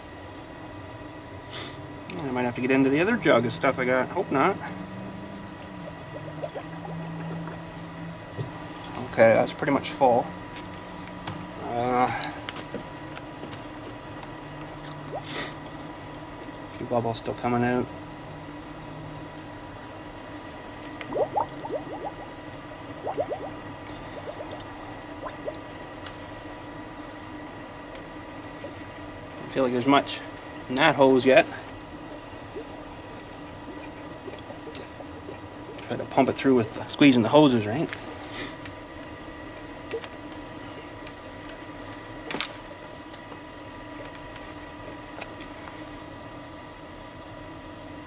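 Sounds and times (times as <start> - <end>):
steady hum with high whine: 0.0 - 48.0
coolant gurgling in reservoir: 2.2 - 9.7, 11.6 - 37.4.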